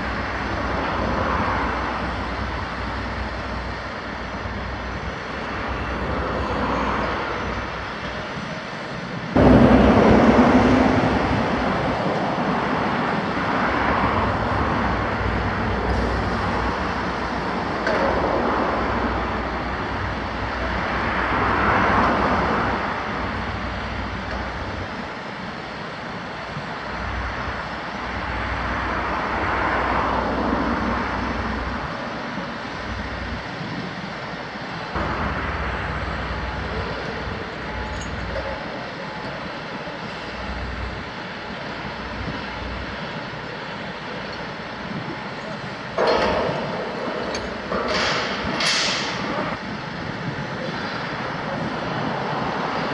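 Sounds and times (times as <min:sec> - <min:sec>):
broad rushing noise: 0:00.0 - 0:52.9.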